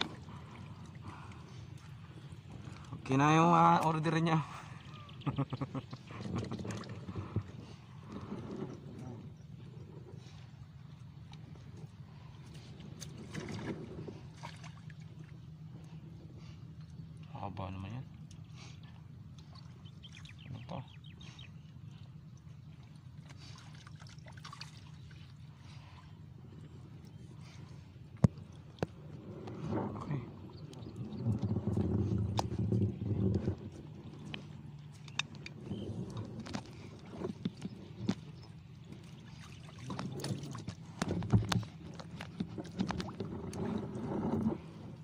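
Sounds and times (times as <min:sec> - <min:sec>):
water sloshing and dripping: 0:00.0 - 0:17.4, 0:18.0 - 0:45.0
water dripping and splashing: 0:22.3 - 0:25.8, 0:33.8 - 0:43.7
low rumble: 0:24.8 - 0:45.0.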